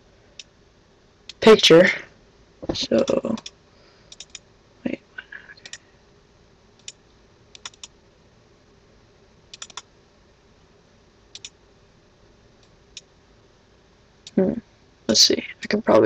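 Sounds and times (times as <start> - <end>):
faint steady hum: 0.0 - 16.0
computer mouse clicks: 3.0 - 4.4, 5.6 - 5.8, 6.8 - 8.0, 9.5 - 9.9, 11.3 - 11.6.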